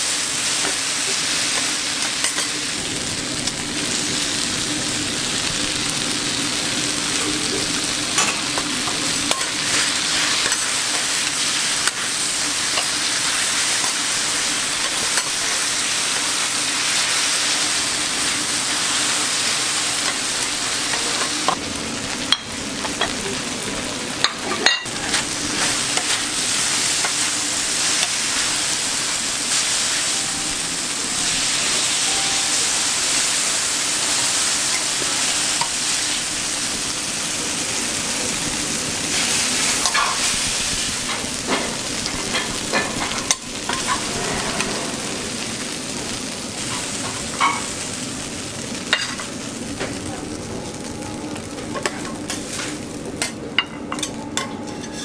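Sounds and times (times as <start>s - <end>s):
food sizzling on a griddle: 0.0s - 55.0s
metal spatulas scraping and clicking: 54.0s - 55.0s.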